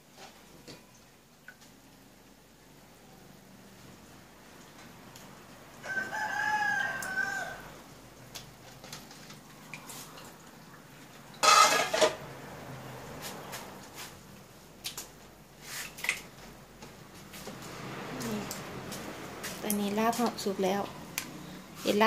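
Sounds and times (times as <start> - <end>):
rooster crowing: 5.8 - 7.9.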